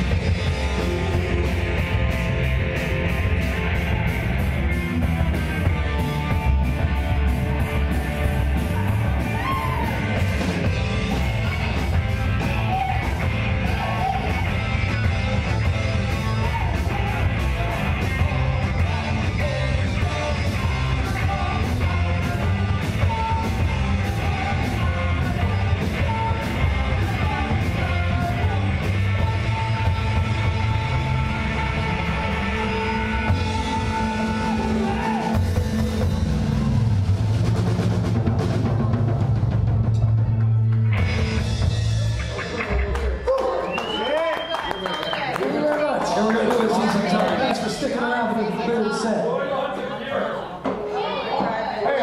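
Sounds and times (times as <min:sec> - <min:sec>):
live rock band playing: 0:00.0 - 0:45.5
singer shouting: 0:08.6 - 0:10.3, 0:12.4 - 0:15.0, 0:16.0 - 0:35.5.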